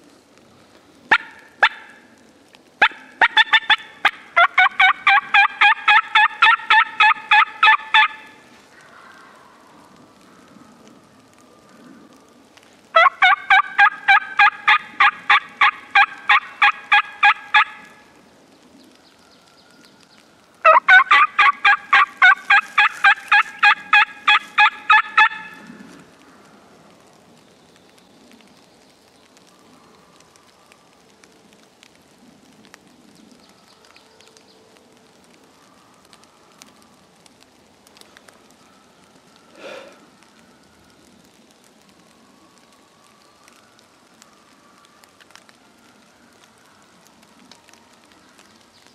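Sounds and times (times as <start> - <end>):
turkey yelping: 2.8 - 8.2, 13.0 - 17.8, 20.6 - 25.6.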